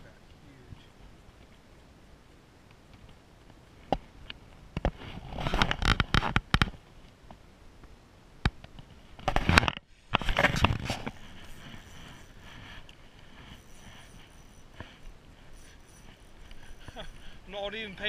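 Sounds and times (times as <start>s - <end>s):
handling noise rustling and scraping: 4.8s - 6.7s, 9.0s - 18.0s.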